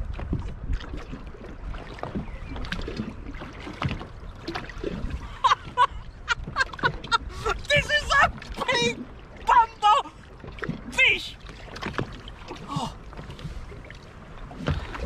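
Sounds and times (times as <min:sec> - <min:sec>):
water slapping against boat hull: 0:00.0 - 0:15.0
knocks in boat: 0:01.7 - 0:07.2, 0:10.5 - 0:13.6, 0:14.5 - 0:15.0.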